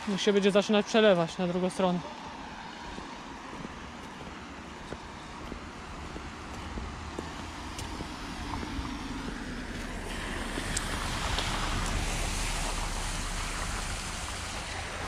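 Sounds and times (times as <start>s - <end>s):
wind buffeting the microphone: 2.8s - 15.0s
rushing hiss: 10.0s - 15.0s.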